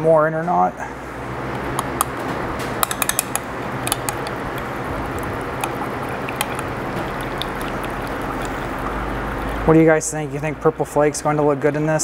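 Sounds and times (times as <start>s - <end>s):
steady background rush: 0.9s - 10.0s
stirring rod clicking on glass: 2.8s - 9.7s.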